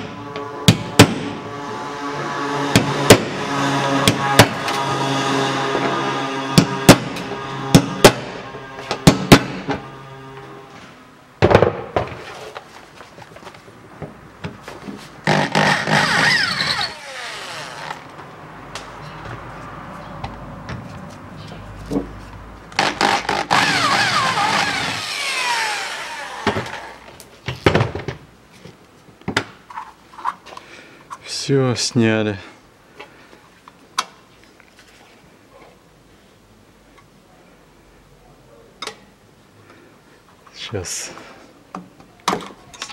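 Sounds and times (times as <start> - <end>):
metallic scraping and squeaking: 0.0 - 11.0, 15.2 - 18.1.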